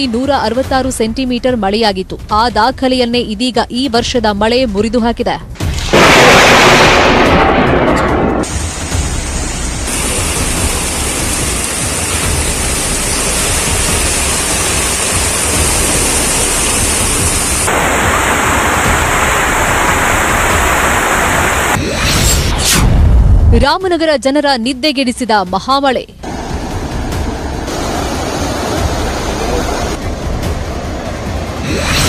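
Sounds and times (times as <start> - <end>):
heavy rain: 5.8 - 21.8, 26.2 - 32.0
rushing floodwater: 8.5 - 21.8, 26.3 - 31.6.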